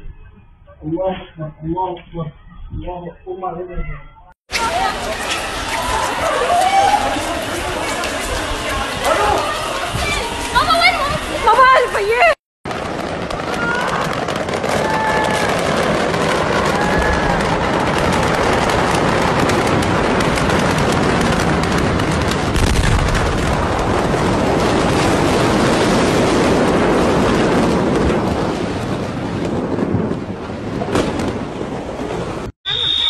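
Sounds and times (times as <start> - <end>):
rushing wind and debris: 4.5 - 32.6
fire crackling and popping: 12.6 - 32.2
heavy low explosion blast: 12.7 - 32.5.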